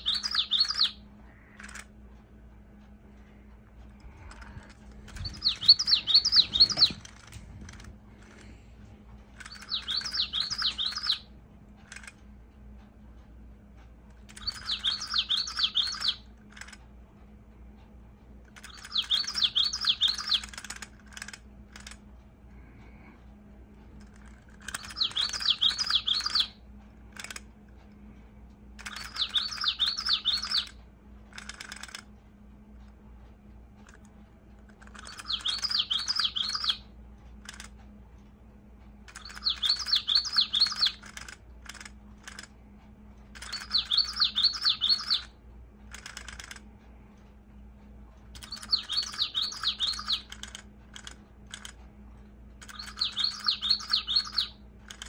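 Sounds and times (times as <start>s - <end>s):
toy bird song of high notes: 0.0s - 1.9s, 4.3s - 7.3s, 9.4s - 11.3s, 14.3s - 16.8s, 18.6s - 22.0s, 24.2s - 26.6s, 28.8s - 32.0s, 34.8s - 36.9s, 39.1s - 41.3s, 43.3s - 46.3s, 48.4s - 51.1s, 52.6s - 55.0s
short clicks: 0.0s - 16.9s, 18.4s - 23.1s, 23.8s - 32.2s, 33.8s - 47.3s, 48.1s - 55.0s.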